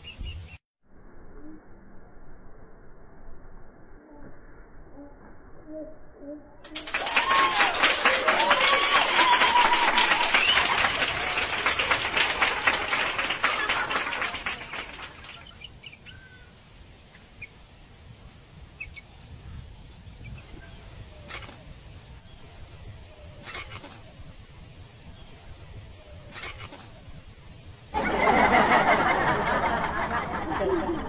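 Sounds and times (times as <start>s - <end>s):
bird calls and chirps: 0.0s - 0.6s, 14.6s - 17.6s, 18.2s - 27.2s.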